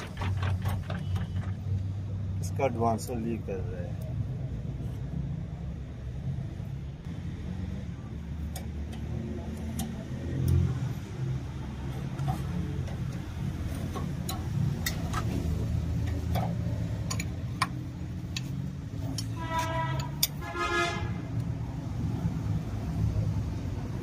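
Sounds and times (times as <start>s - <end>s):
diesel tractor engine rumbling: 5.5s - 24.0s.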